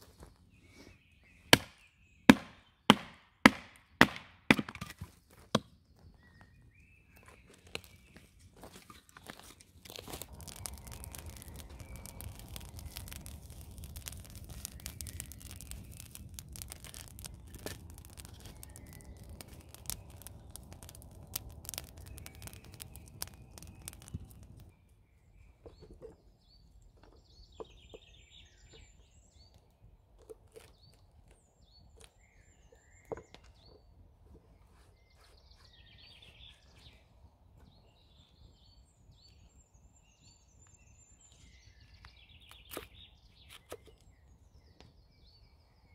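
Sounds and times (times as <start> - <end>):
birds chirping: 5.0 - 45.9
campfire crackling and popping: 7.2 - 24.9
low rumble: 10.1 - 24.7.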